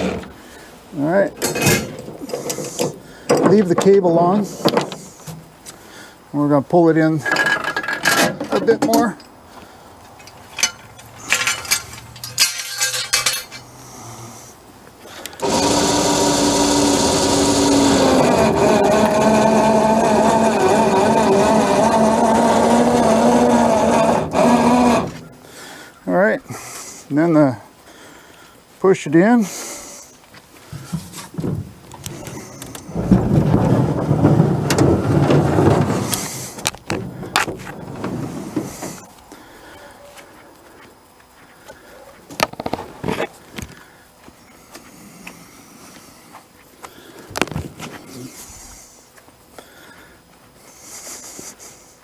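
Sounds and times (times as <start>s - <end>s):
boat hull scraping into truck bed: 0.0s - 0.4s, 15.4s - 25.3s, 30.8s - 39.1s
metallic cable rattling: 10.5s - 13.7s
motorised winch running: 15.2s - 25.3s.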